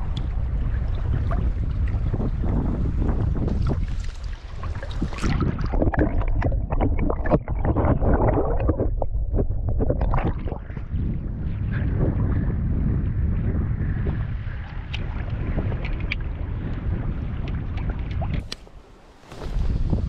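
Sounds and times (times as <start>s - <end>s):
wind rumble on microphone: 0.0s - 20.0s
river water splashing and gurgling: 3.4s - 8.6s.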